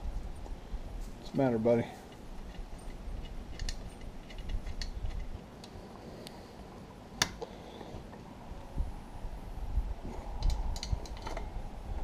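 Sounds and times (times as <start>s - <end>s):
wrench and bolts clicking: 2.1s - 5.7s.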